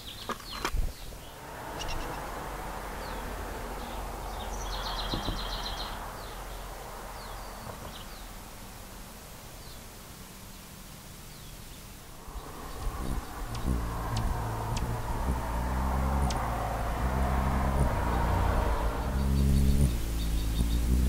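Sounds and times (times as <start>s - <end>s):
hummingbird wings humming: 1.2s - 21.0s
faint high bird chirps: 3.8s - 8.3s, 18.5s - 21.0s.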